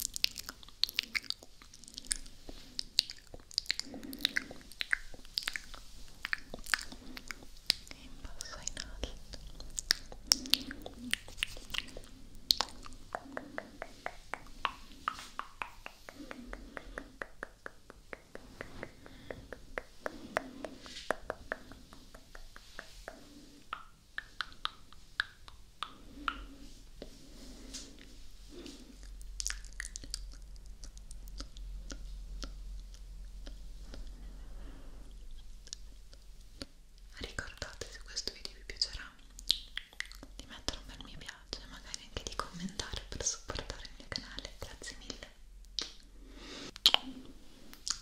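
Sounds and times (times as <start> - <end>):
tongue clicks: 0.0 - 26.5, 29.0 - 34.1, 39.2 - 40.6, 41.9 - 46.1, 46.8 - 48.0
wet lip smacks: 0.0 - 27.1, 29.0 - 34.1, 39.3 - 40.4, 45.7 - 46.1, 46.8 - 48.0
kiss sounds: 45.7 - 46.0, 46.8 - 47.2.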